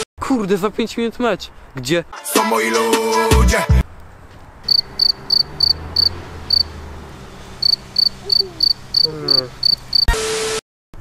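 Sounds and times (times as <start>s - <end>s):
cricket chirps: 4.7s - 6.7s, 7.6s - 10.1s.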